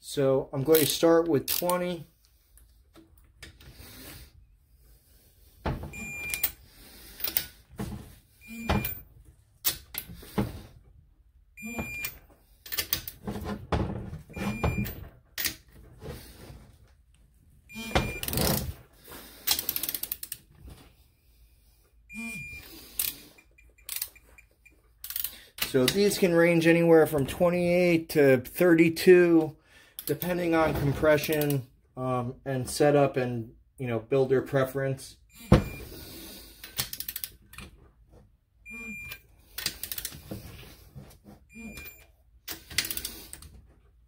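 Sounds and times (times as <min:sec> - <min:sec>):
torque wrench ratcheting and clicking: 0:25.0 - 0:25.4.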